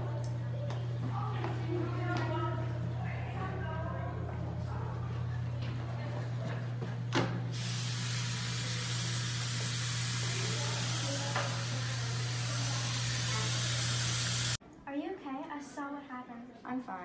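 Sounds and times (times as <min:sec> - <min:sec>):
faucet water pouring into sink: 0:07.6 - 0:14.6.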